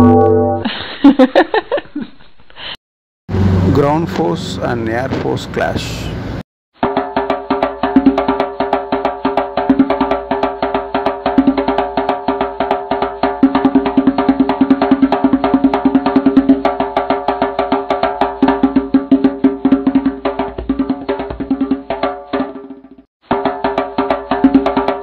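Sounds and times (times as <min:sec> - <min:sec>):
steady held synth tones: 0:00.0 - 0:00.7
fast clicking percussion beat: 0:06.8 - 0:25.0.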